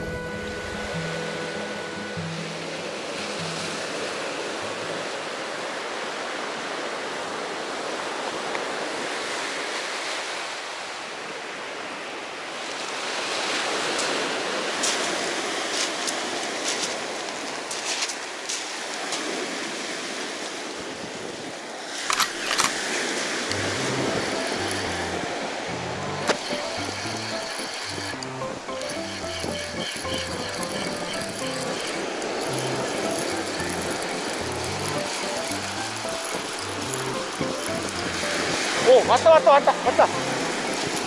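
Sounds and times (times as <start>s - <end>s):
waves washing up a pebble beach: 3.1s - 22.1s, 22.8s - 25.7s, 31.8s - 41.0s.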